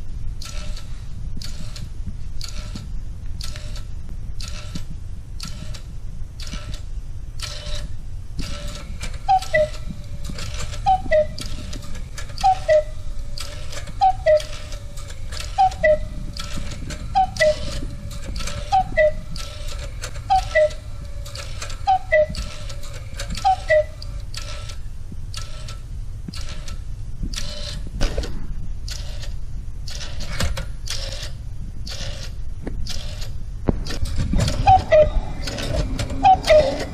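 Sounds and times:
clock gears clicking: 0.4s - 27.8s, 28.8s - 36.9s
two-note cuckoo calls: 12.4s - 13.0s, 14.0s - 14.5s, 15.5s - 16.2s, 20.3s - 20.8s, 23.4s - 24.0s, 34.6s - 36.9s.

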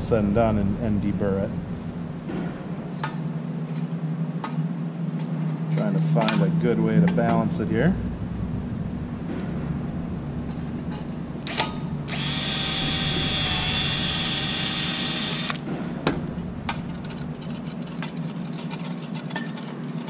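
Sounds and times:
cordless drill drilling metal: 11.5s - 15.6s.

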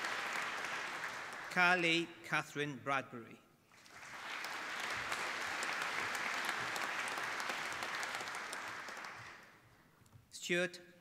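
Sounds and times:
audience applauding: 0.0s - 1.6s, 3.8s - 9.5s.

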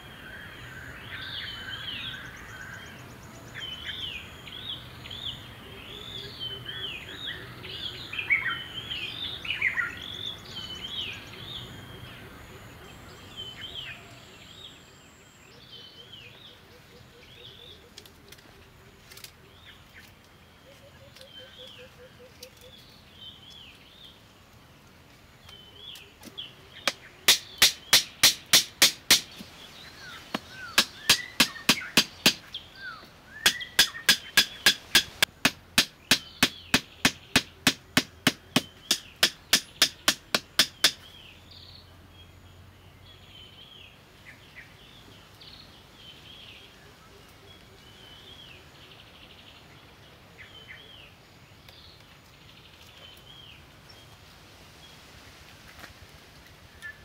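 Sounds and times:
birds chirping: 0.0s - 55.0s
hammer driving wooden stakes: 26.9s - 29.6s, 30.3s - 32.5s, 33.4s - 41.0s.

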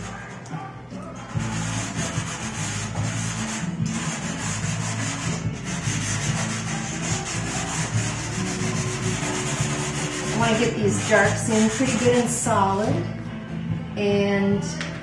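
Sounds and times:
pastel scratching on paper: 1.4s - 12.5s.

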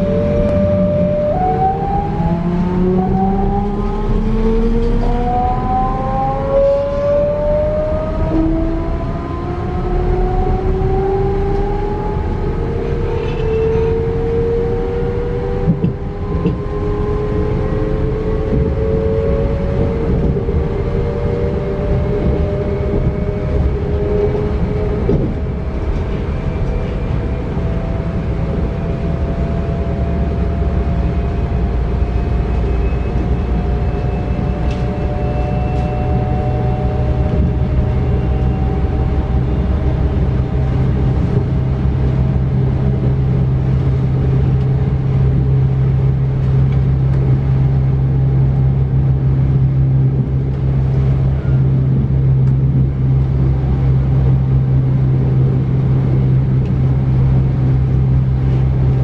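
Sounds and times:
steady low hum: 0.0s - 59.0s
thin whine of traction equipment: 0.0s - 59.0s
train wheels rumbling on rails: 0.0s - 59.0s.

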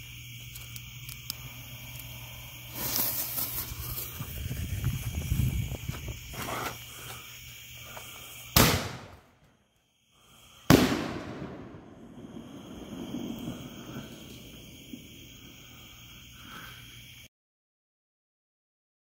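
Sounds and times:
loud firework bangs: 8.5s - 9.3s, 10.7s - 15.7s.

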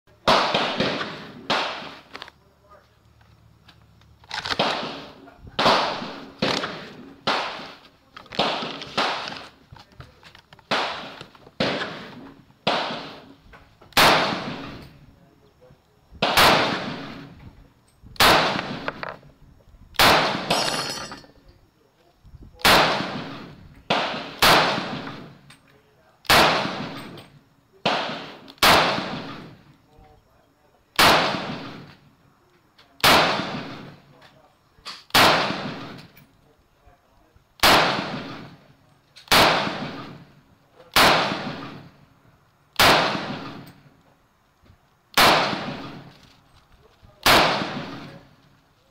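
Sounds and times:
rifle shots: 0.2s - 2.3s, 4.2s - 9.6s, 10.7s - 15.0s, 16.2s - 17.4s, 18.2s - 19.2s, 19.9s - 21.1s, 22.6s - 25.5s, 26.2s - 29.7s, 31.0s - 32.0s, 33.0s - 34.1s, 35.0s - 36.2s, 37.6s - 42.0s, 42.7s - 43.9s, 45.1s - 46.2s, 47.2s - 48.3s.

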